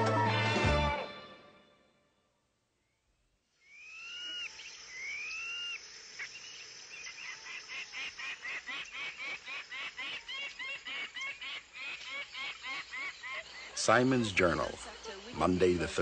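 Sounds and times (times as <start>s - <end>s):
bird long whistles: 3.6s - 7.4s.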